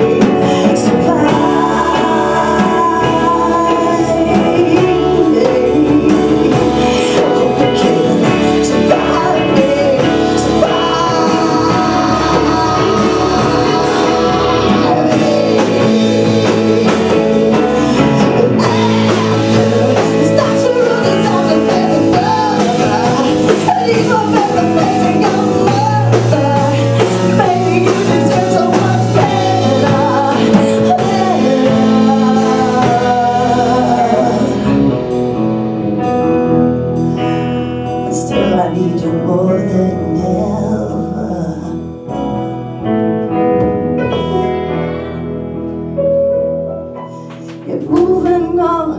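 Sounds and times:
drums steady beat: 0.0s - 35.3s
woman singing rock song: 0.0s - 43.0s, 47.1s - 48.9s
live rock band playing: 0.0s - 48.9s.

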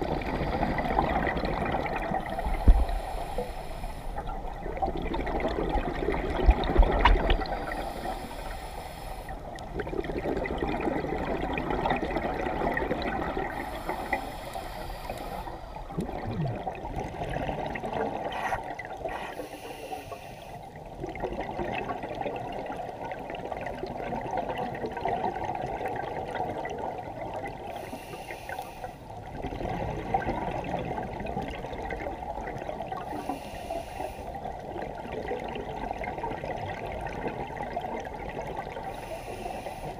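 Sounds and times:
bubbles gurgling underwater: 0.0s - 3.0s, 4.2s - 8.0s, 9.5s - 13.8s, 15.8s - 19.1s, 20.8s - 27.8s, 29.2s - 33.3s, 34.4s - 39.1s
hissing regulator breaths: 2.2s - 4.3s, 7.6s - 9.5s, 13.5s - 15.8s, 18.4s - 20.6s, 27.7s - 29.1s, 33.1s - 34.4s, 38.9s - 39.9s.

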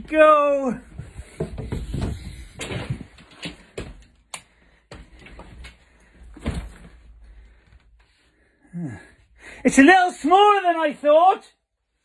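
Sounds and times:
knocks clicks and thumps: 0.9s - 5.6s.

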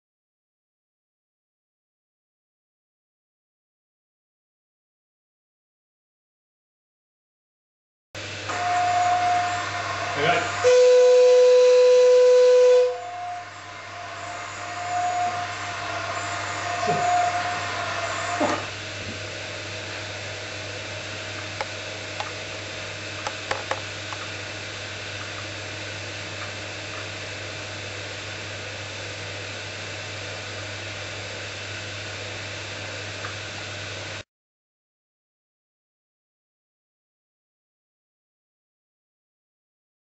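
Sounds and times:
gas hissing: 8.2s - 24.3s
loud steady beep: 10.7s - 12.6s.

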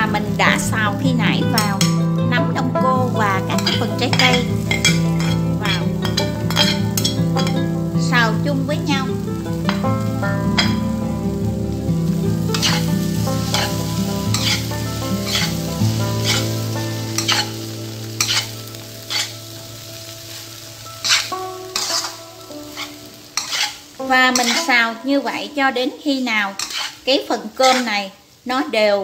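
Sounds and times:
light sizzle: 0.0s - 29.0s
spatula scraping pan: 3.1s - 7.8s, 9.4s - 11.0s, 12.4s - 19.5s, 20.3s - 24.8s, 26.5s - 28.0s.

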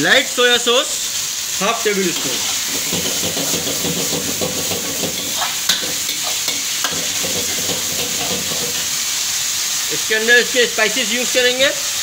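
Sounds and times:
food sizzling in a wok: 0.0s - 12.0s
metal ladle stirring and scraping: 2.2s - 9.1s
ladle knocking against wok: 2.7s - 9.0s.

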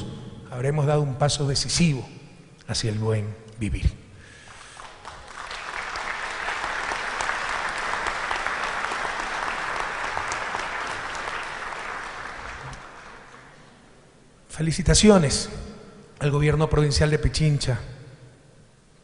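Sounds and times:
audience applauding: 4.5s - 13.8s.

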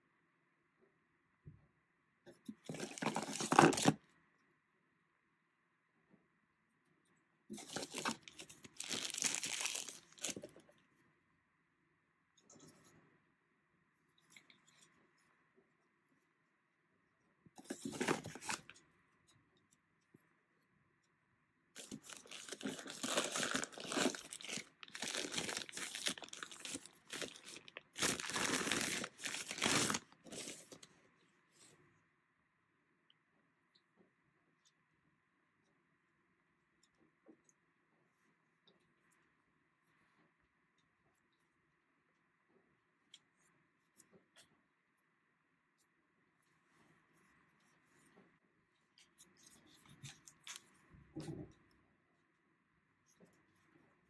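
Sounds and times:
plastic wrap crinkling: 2.7s - 4.0s, 7.6s - 10.6s, 21.8s - 30.8s.

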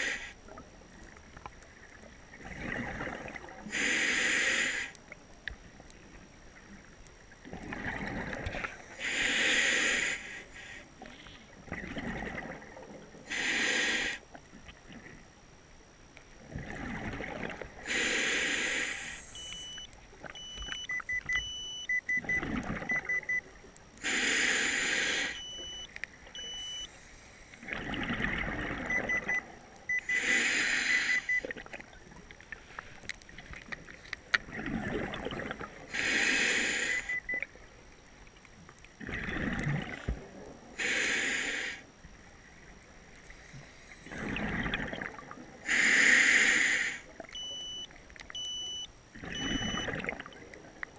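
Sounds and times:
rumble of exhaled bubbles: 1.8s - 3.7s, 6.7s - 8.7s, 11.4s - 13.3s, 16.4s - 17.9s, 22.2s - 23.2s, 27.6s - 29.8s, 33.4s - 35.9s, 38.9s - 40.8s, 44.0s - 45.7s, 49.2s - 50.8s
regulator air hiss: 3.7s - 4.9s, 8.9s - 10.9s, 13.3s - 14.2s, 17.9s - 19.6s, 24.0s - 25.6s, 30.0s - 31.4s, 35.9s - 37.2s, 40.8s - 41.9s, 45.7s - 47.1s
faint electronic beeps: 19.0s - 23.5s, 25.0s - 27.1s, 28.8s - 31.5s, 36.6s - 37.5s, 47.4s - 50.0s.

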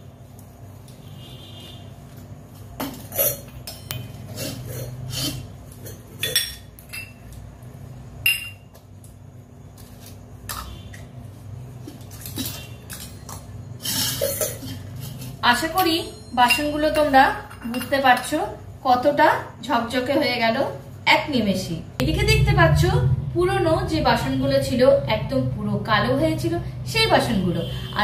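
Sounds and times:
low steady hum: 0.0s - 28.0s
metal utensils clinking: 12.3s - 18.4s.

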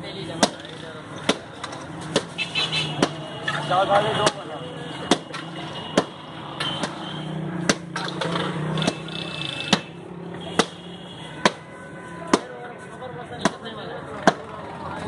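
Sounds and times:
sharp knocks: 0.4s - 3.3s, 4.2s - 6.2s
faint market murmur: 8.4s - 15.0s.

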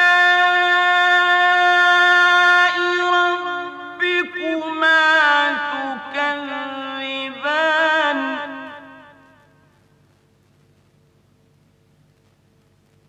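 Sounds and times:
man chanting melismatic recitation: 0.0s - 9.5s.

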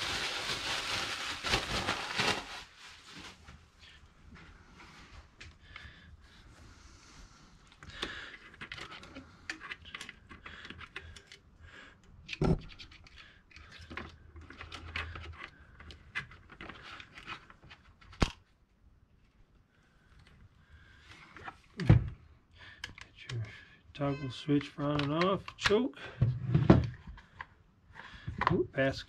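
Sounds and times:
packaging crinkling and scraping: 0.0s - 3.5s.

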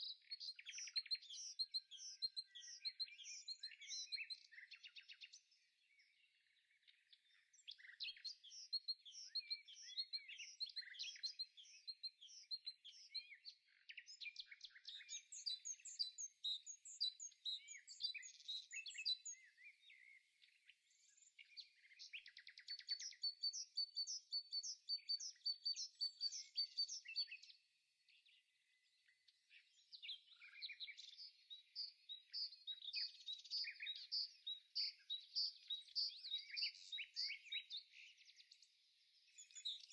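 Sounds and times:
songbirds chirping and trilling: 0.0s - 39.9s.

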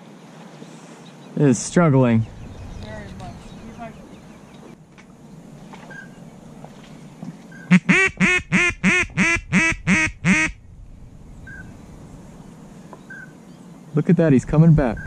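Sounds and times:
duck call quacks: 7.7s - 10.6s.

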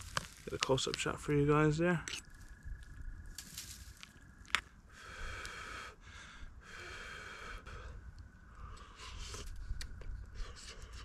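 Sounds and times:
man breathing through the nose: 4.8s - 11.0s.

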